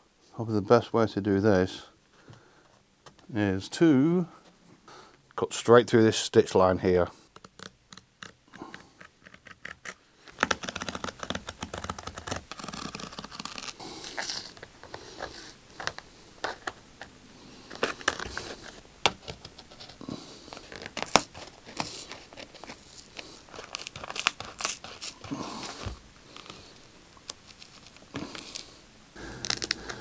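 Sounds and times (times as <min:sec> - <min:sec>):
seam tearing: 0:07.4 - 0:16.6, 0:20.0 - 0:30.0
blade scratching: 0:20.6 - 0:26.6.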